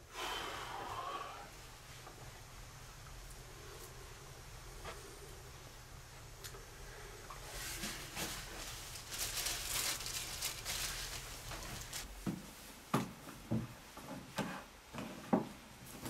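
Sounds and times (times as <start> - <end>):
low steady hum: 0.0 - 14.0
soft rustling and pattering: 7.3 - 16.0.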